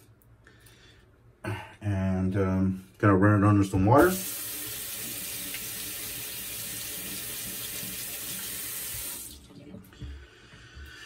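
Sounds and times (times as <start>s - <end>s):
water running from sink tap: 4.0s - 9.6s.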